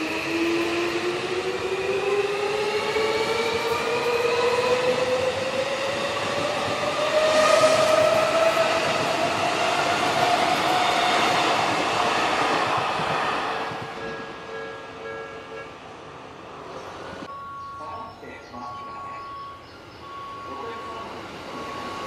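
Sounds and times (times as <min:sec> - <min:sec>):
wheel and track noise: 0:00.0 - 0:15.6.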